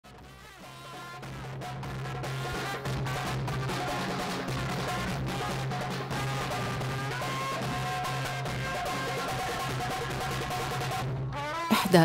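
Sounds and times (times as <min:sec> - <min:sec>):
drums: 0:00.0 - 0:12.0
trumpet melody: 0:00.1 - 0:12.0.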